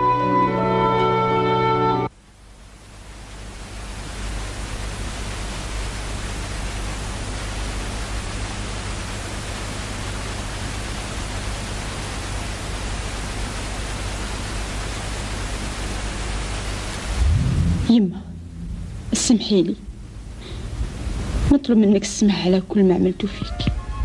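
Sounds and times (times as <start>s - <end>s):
steady hiss: 0.6s - 23.6s
faint low hum: 16.0s - 23.5s.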